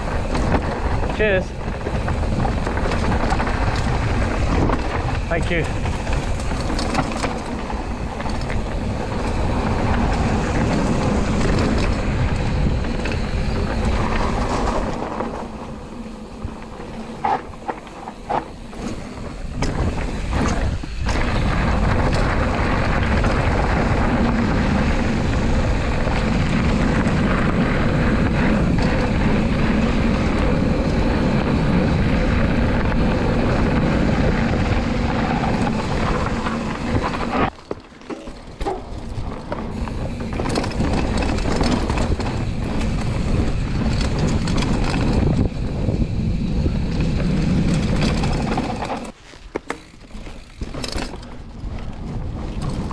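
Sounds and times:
wind rushing over microphone: 0.0s - 37.6s, 38.4s - 49.2s, 49.8s - 52.9s
bike rattling over stones: 0.0s - 52.9s
bike tyres rumbling: 0.0s - 52.9s.

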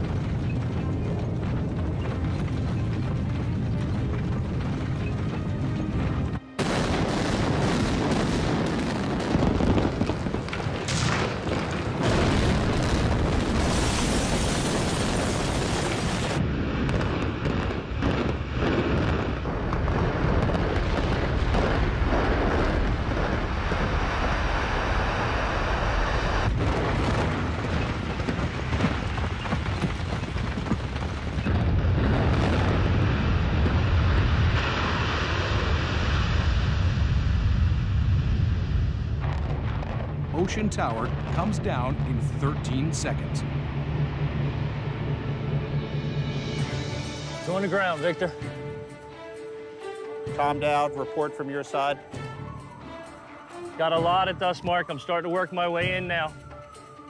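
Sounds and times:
building demolition rumble: 0.0s - 48.4s.

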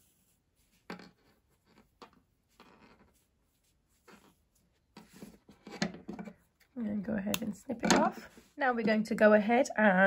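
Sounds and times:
yarn rustling through stitches: 0.0s - 7.2s.

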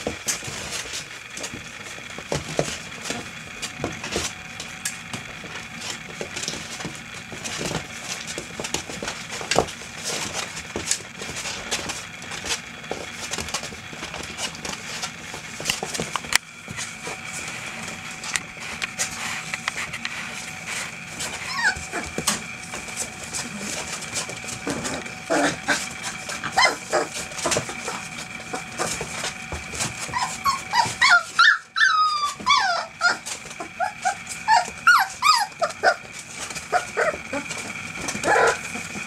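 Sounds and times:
puppies whimpering and yipping: 20.3s - 39.0s.

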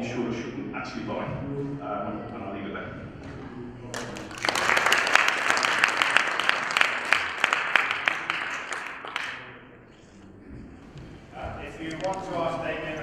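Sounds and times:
audience applauding: 3.9s - 9.5s.

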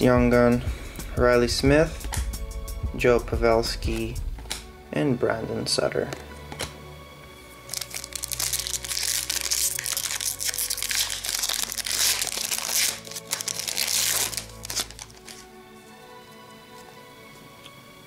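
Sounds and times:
background music: 0.0s - 18.0s
foil wrapper crinkling: 7.7s - 15.5s.

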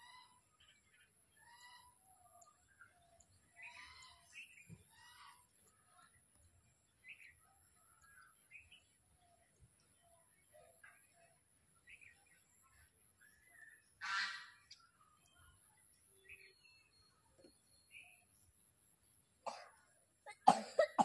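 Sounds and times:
faint bird calls: 0.0s - 6.3s, 10.0s - 15.6s.

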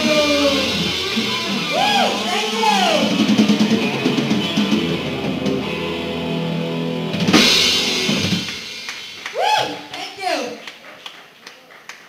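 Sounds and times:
distorted electric guitars: 0.0s - 9.3s
drums: 0.0s - 11.4s.

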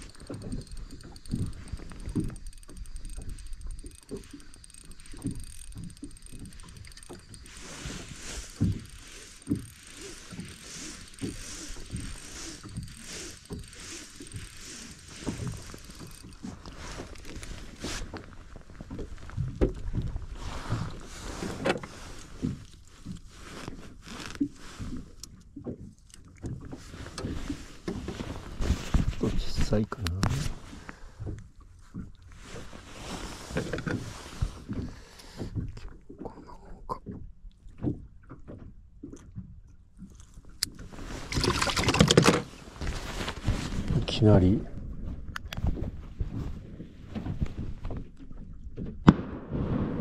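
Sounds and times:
fishing tackle knocks and clicks: 0.0s - 20.2s, 33.5s - 34.0s, 40.0s - 42.5s
fish handled against boat side: 0.0s - 36.2s, 40.0s - 44.1s.

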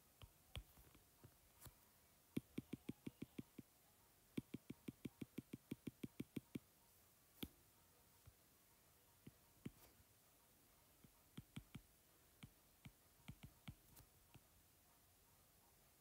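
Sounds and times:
stylus tapping on glass screen: 2.4s - 3.7s, 4.3s - 6.7s, 11.0s - 14.4s.

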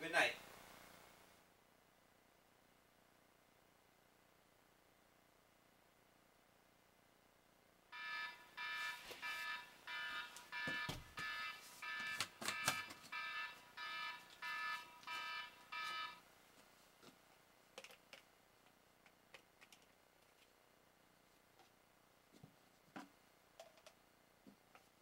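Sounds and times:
electronic alarm beeping: 8.0s - 16.2s.

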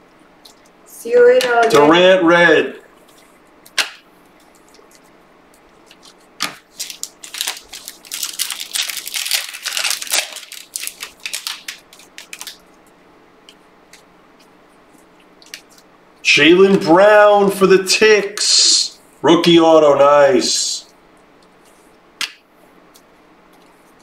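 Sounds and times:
card pack wrapper tearing and crinkling: 5.9s - 12.7s.

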